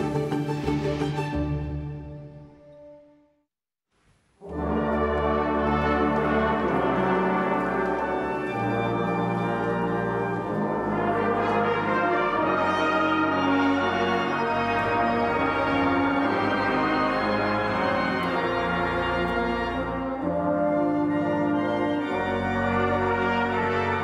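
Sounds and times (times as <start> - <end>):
brass chords: 4.4 - 24.0.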